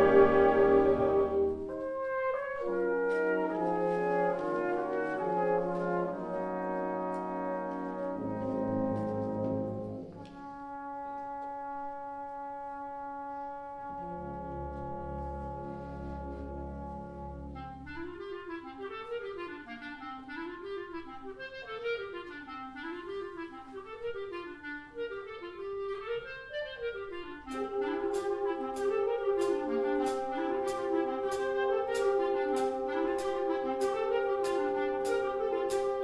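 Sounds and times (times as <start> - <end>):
low brass chord: 0.0 - 18.1
wind band playing: 0.0 - 36.0.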